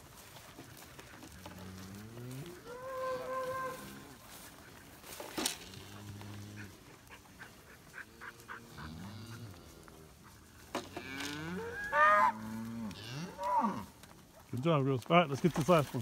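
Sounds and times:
cattle mooing: 0:01.4 - 0:04.2, 0:05.6 - 0:06.8, 0:08.0 - 0:10.2, 0:10.8 - 0:13.9.

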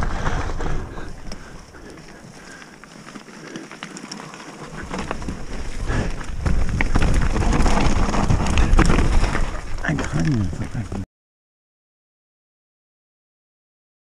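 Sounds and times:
bike tyre rumble: 0:00.0 - 0:11.0
light clicks and crunches: 0:01.0 - 0:11.0
wind noise on camera: 0:04.8 - 0:09.8.

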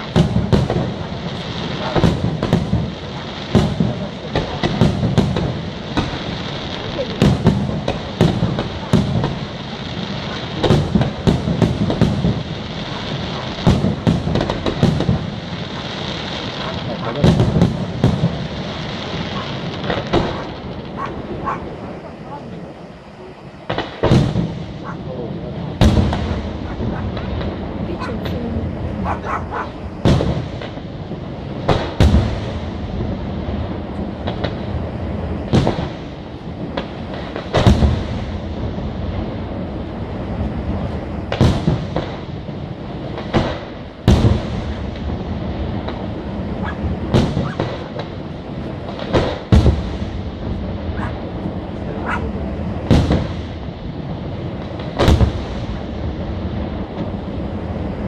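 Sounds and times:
firework shells bursting: 0:00.0 - 0:22.2
fireworks bangs: 0:00.0 - 0:58.0
fireworks hissing: 0:00.0 - 0:58.0.

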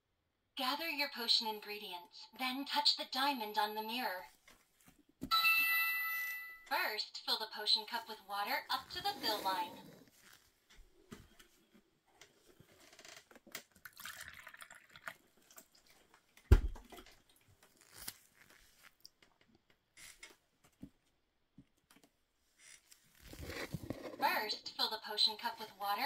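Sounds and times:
water trickling into plastic cup: 0:13.6 - 0:18.0.

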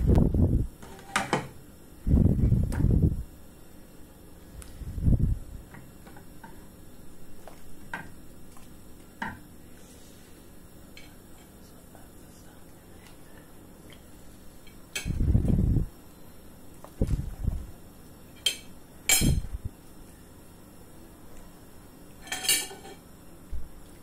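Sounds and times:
kitchenware clinking on a pot: 0:22.2 - 0:23.0.

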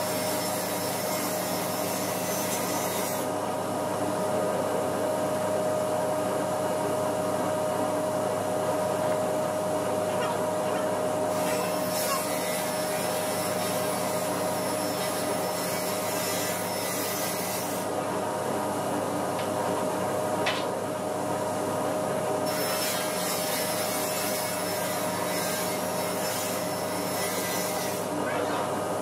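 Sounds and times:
saw blade cutting wood hiss: 0:00.0 - 0:03.3, 0:11.3 - 0:17.9, 0:22.5 - 0:28.1
panel saw motor whine: 0:09.0 - 0:17.8.

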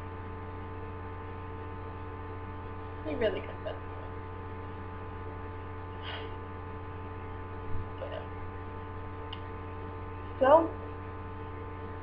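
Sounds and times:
steady electrical hum: 0:00.0 - 0:12.0
short breath: 0:06.0 - 0:06.4.

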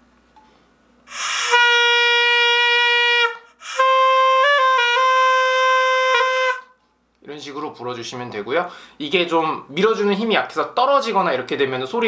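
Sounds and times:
double-reed shawm notes: 0:01.1 - 0:06.8.

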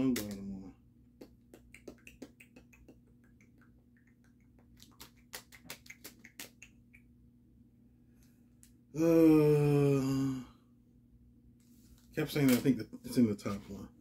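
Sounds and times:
cards clicking and crinkling: 0:12.4 - 0:12.7.

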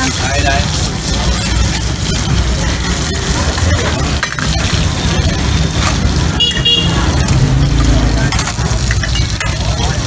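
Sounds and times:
low rumble of street noise: 0:00.0 - 0:10.0
steady noisy hiss: 0:00.0 - 0:10.0
metal tongs clinking on pans: 0:03.4 - 0:04.8, 0:07.1 - 0:10.0.

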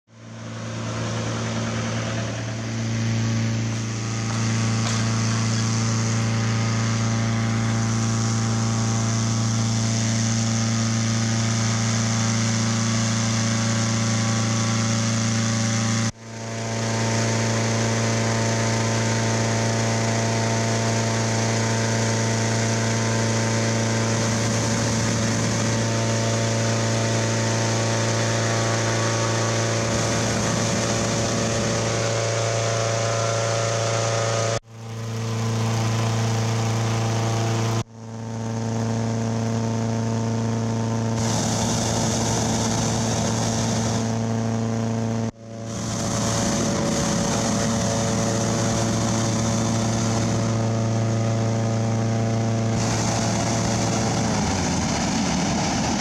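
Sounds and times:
engine-driven fans running: 0:00.1 - 0:56.0.

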